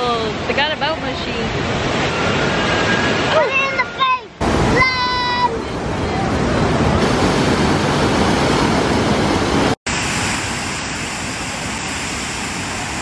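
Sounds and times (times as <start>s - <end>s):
waterfall rushing over rocks: 7.0s - 13.0s.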